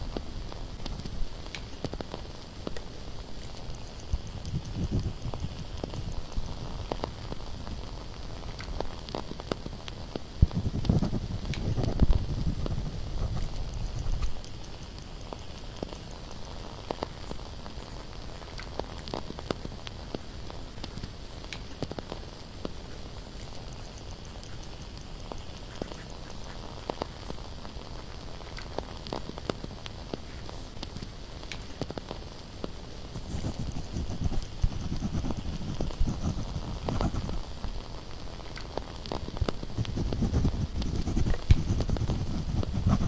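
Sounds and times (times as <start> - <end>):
candle crackling: 0.0 - 43.0
soft steady hiss: 0.0 - 43.0
scratching and rustling: 33.0 - 37.8, 38.4 - 43.0.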